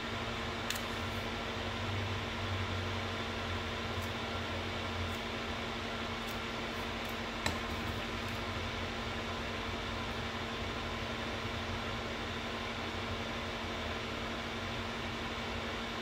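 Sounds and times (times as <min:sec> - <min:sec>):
fan-like mechanical hum: 0:00.0 - 0:16.0
soldering iron click: 0:00.6 - 0:01.0.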